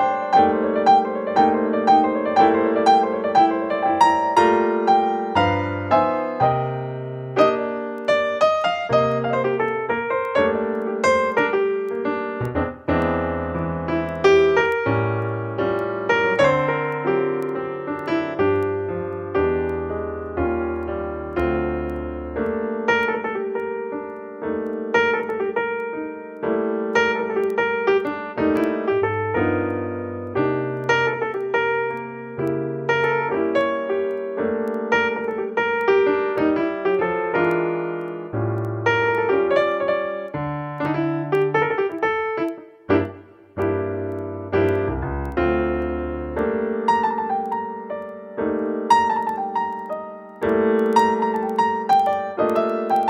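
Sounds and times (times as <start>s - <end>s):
keyboard chords and melody: 0.0s - 53.0s
piano music: 0.0s - 53.0s.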